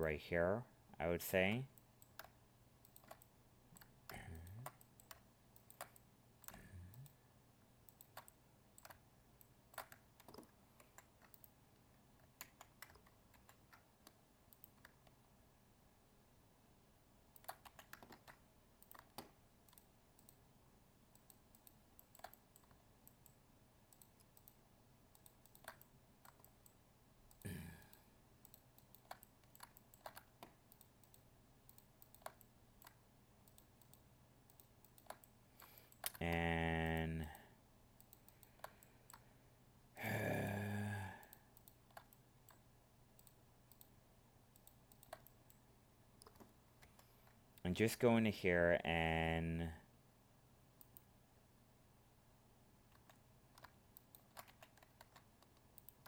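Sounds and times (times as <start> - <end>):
mouse and keyboard clicks: 1.7 - 7.2, 7.9 - 15.3, 17.3 - 20.4, 21.1 - 27.4, 28.4 - 36.3, 38.0 - 39.3, 41.5 - 45.6, 46.2 - 47.6, 52.9 - 56.0.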